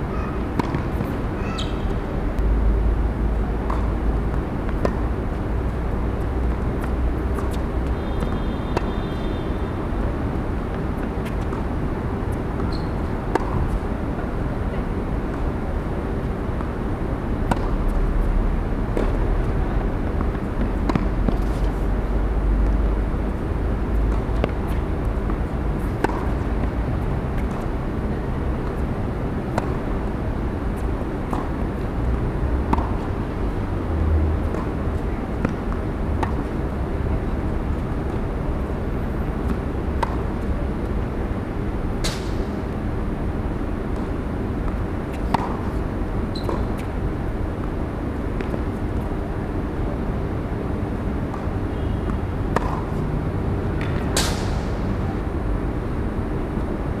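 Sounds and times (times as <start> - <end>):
balls bouncing on hard court: 0.1 - 1.9, 24.1 - 26.8, 44.7 - 46.9, 51.3 - 53.0, 53.8 - 54.6
tennis balls struck by rackets: 0.1 - 2.5, 12.5 - 14.3, 17.4 - 18.0, 18.8 - 21.8, 24.1 - 37.2, 39.4 - 41.0, 42.0 - 42.6, 44.0 - 49.1, 51.3 - 53.1, 53.7 - 54.8.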